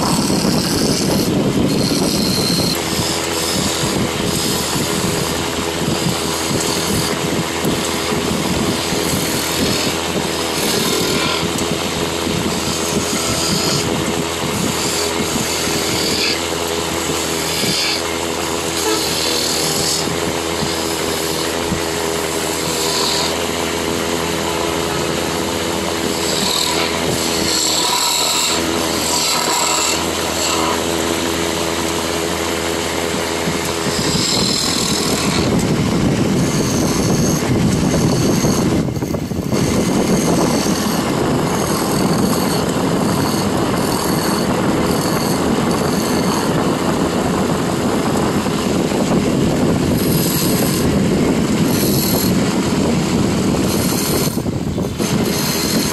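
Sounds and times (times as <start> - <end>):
chisel cutting spinning wood: 0.0 - 55.9
wood lathe motor hum: 0.0 - 55.9.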